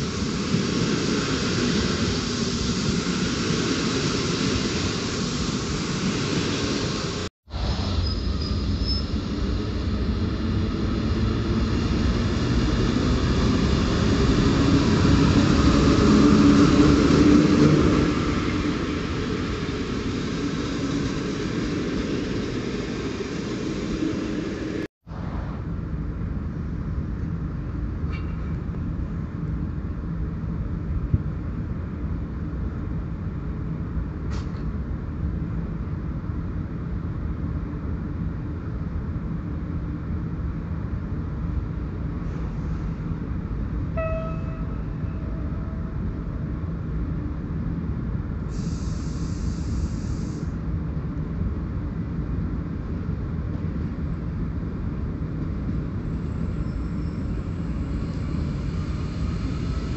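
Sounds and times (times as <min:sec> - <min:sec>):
passenger train passing: 0:00.0 - 0:59.9
faint high tones: 0:44.0 - 0:46.1.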